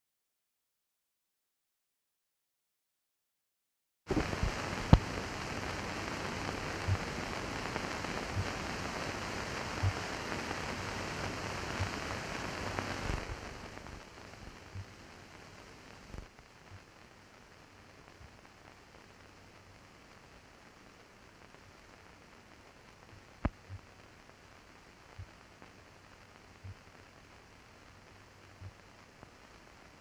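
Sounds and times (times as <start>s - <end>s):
soft low pops: 4.1s - 6.2s, 6.8s - 10.9s, 11.6s - 15.0s, 23.0s - 24.0s
film soundtrack hiss and crackle: 4.1s - 30.0s.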